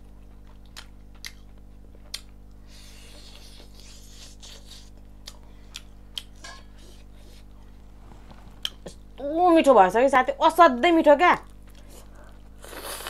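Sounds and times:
person chewing food: 0.1 - 7.8, 8.6 - 9.2.

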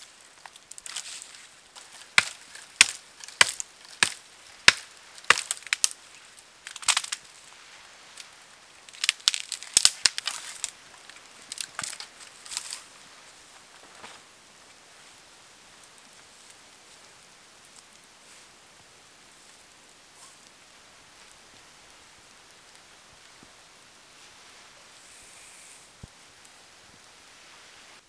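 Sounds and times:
dry branches cracking and snapping: 0.0 - 14.3.

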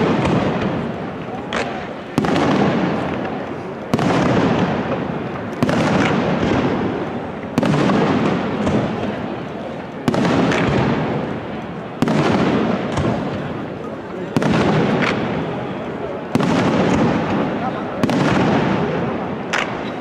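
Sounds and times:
firework shells bursting: 14.4 - 15.5.

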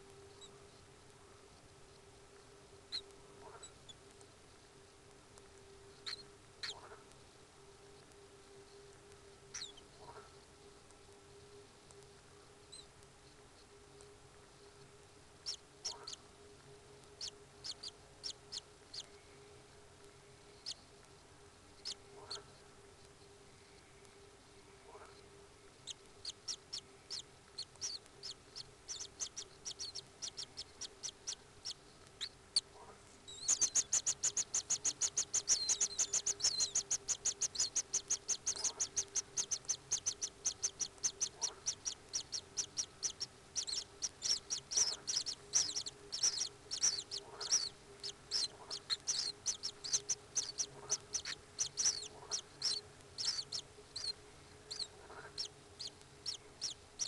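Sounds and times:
faint steady hum: 0.0 - 57.0
kingfisher chirping: 25.9 - 32.7, 33.3 - 56.8.

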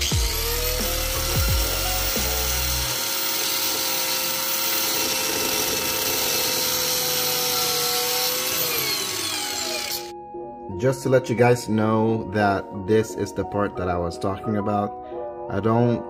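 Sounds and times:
angle grinder grinding metal: 0.0 - 10.1.

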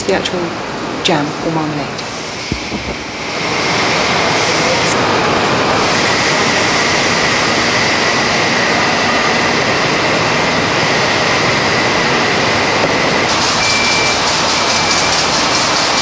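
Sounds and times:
thin high whine: 2.0 - 5.1
fruit processing machinery noise: 11.9 - 16.0.

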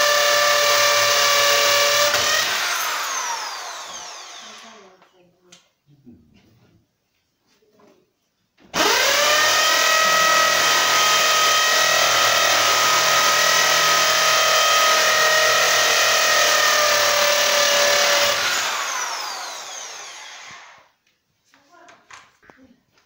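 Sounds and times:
electric drill motor running: 0.0 - 4.9, 8.8 - 20.9.

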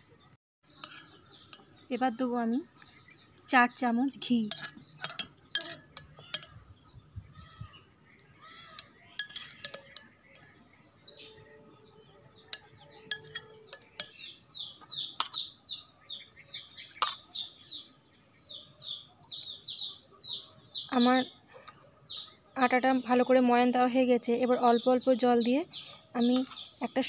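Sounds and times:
small birds chirping: 0.0 - 27.0
metallic clinks on steel bowl: 4.4 - 6.6, 8.7 - 10.2, 12.3 - 14.2.

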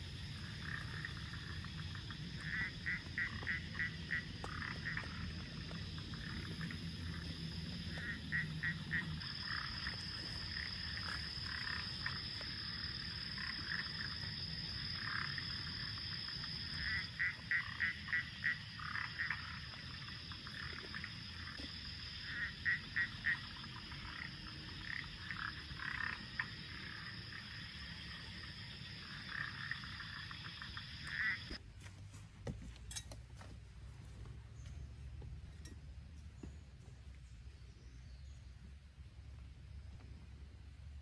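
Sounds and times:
frogs croaking: 0.0 - 31.6.

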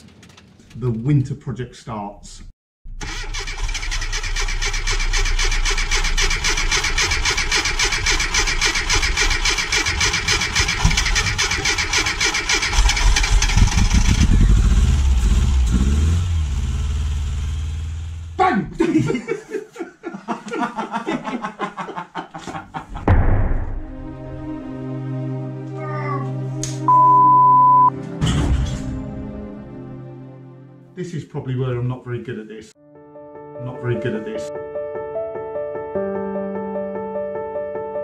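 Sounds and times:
car engine running: 4.5 - 18.4
music: 23.6 - 31.0, 32.8 - 38.0.

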